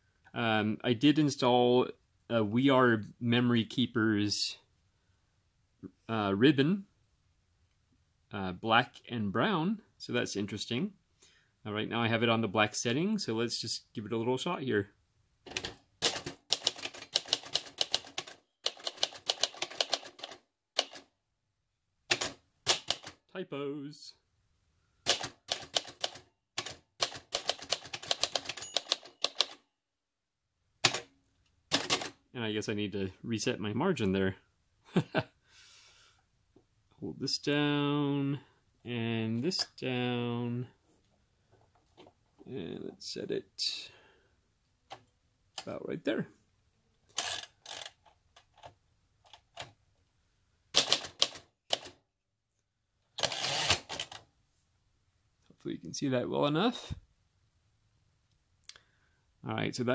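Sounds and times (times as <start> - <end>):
manual typewriter keystrokes: 15.5 - 21.1, 22.1 - 23.2, 25.1 - 29.6, 50.8 - 52.0
typewriter mechanism clicks: 50.8 - 51.9.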